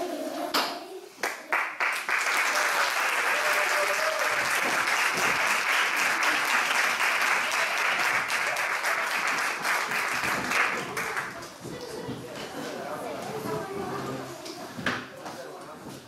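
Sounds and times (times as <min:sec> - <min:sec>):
audience applauding: 0:01.2 - 0:11.5.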